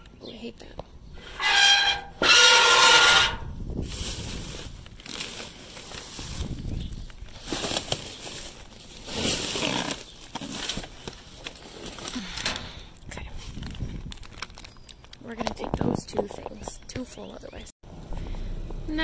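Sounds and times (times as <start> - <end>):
trash bags crinkling and rustling: 3.7 - 16.3.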